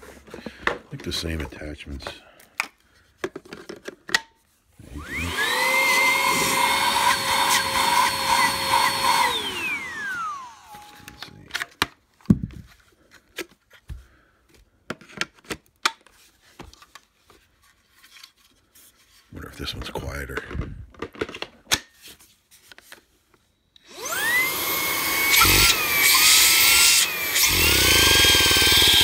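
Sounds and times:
vacuum motor whine: 4.8s - 11.5s, 23.8s - 29.0s.

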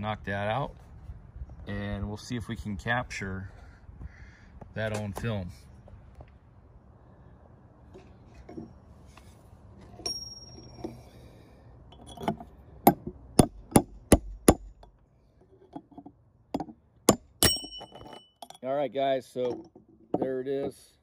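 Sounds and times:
hammer striking steel punch: 17.1s - 18.1s.

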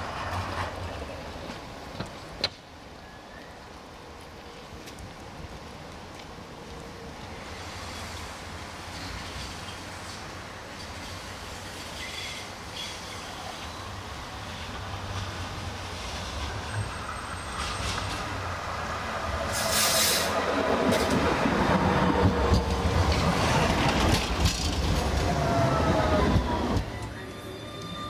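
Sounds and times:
tram wheels rumbling on rails: 0.0s - 28.0s
brief hiss: 19.5s - 20.4s.

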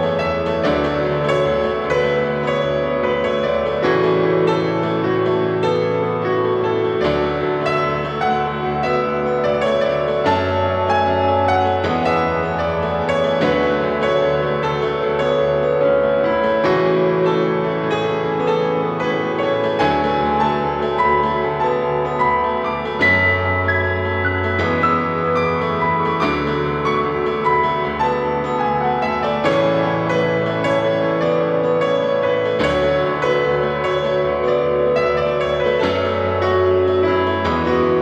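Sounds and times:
calm piano chords: 0.0s - 38.0s.

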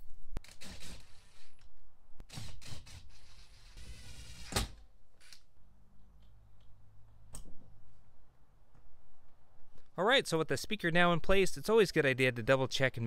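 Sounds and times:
power driver driving screws: 0.4s - 1.7s, 2.3s - 5.4s.

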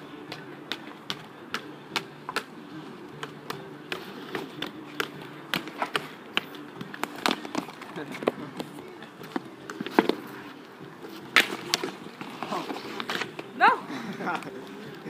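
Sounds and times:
hockey stick tapping ball on asphalt: 0.2s - 10.2s.

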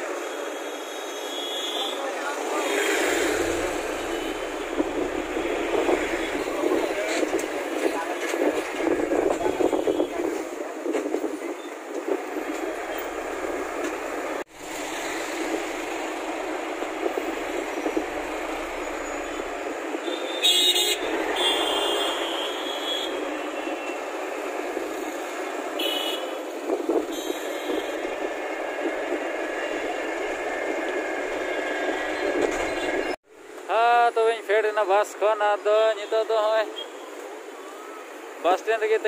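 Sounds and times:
engine and road noise: 0.0s - 39.0s
vehicle horn honks: 9.2s - 10.3s, 20.1s - 23.8s, 25.8s - 26.4s.

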